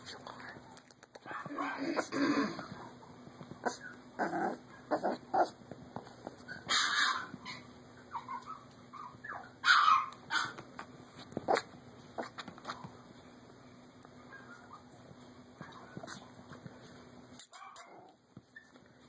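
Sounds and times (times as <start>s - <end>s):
puppy yipping and barking: 6.4s - 10.6s.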